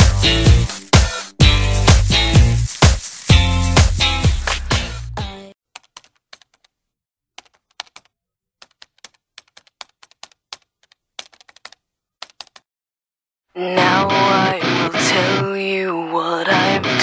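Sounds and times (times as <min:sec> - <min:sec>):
keyboard typing: 0:05.7 - 0:06.8, 0:07.4 - 0:12.6.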